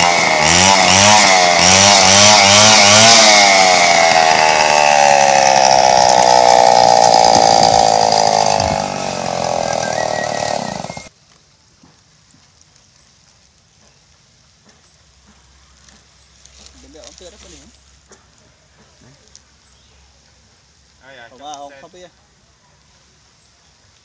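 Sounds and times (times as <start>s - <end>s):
petrol saw engine cutting log: 0.0s - 11.1s.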